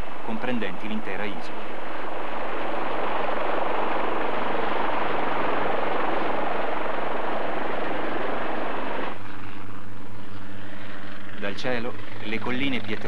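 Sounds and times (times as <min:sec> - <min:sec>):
helicopter rotor and engine: 0:00.0 - 0:13.0.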